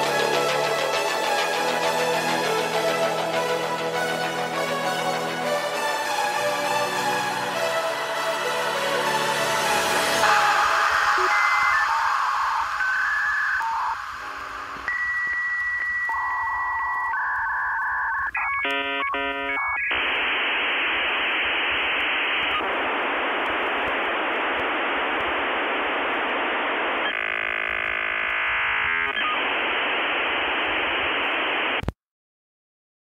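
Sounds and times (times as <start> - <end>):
steady electronic tone: 9.7 - 20.8
warbling electronic tones: 10.2 - 20.0.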